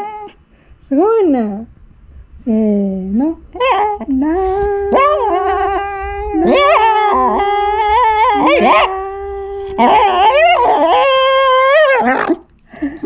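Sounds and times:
dog howling: 0.0 - 0.4, 3.4 - 12.5.

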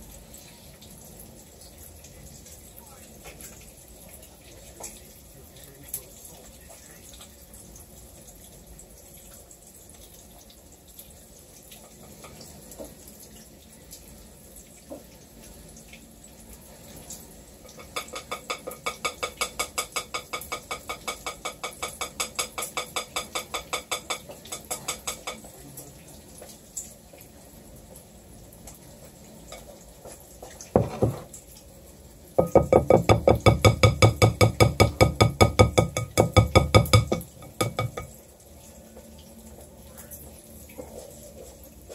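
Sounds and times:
spatula knocking against bowl: 17.7 - 25.5, 32.4 - 38.2.

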